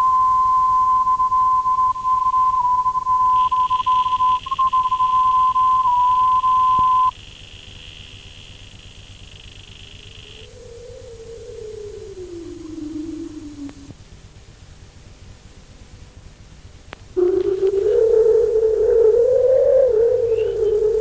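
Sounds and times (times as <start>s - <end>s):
steady test tone: 0.0s - 7.1s, 17.2s - 21.0s
low tape hiss: 0.0s - 21.0s.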